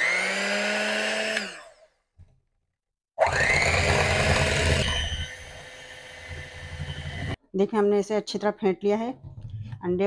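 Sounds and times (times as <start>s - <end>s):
electric hand mixer beating: 0.0s - 1.8s, 3.2s - 7.4s.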